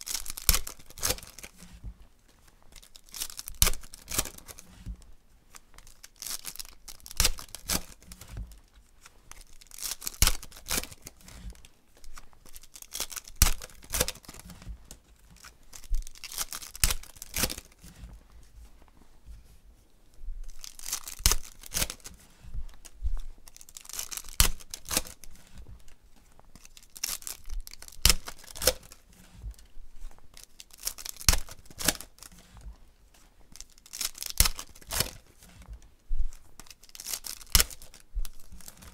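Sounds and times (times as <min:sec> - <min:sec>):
foil wrappers tearing and crinkling: 0:00.0 - 0:01.8, 0:02.7 - 0:04.7, 0:05.8 - 0:08.7, 0:09.3 - 0:14.6, 0:15.4 - 0:17.9, 0:20.5 - 0:22.2, 0:23.4 - 0:25.5, 0:26.6 - 0:29.4, 0:30.3 - 0:32.6, 0:33.5 - 0:35.6, 0:36.6 - 0:38.9.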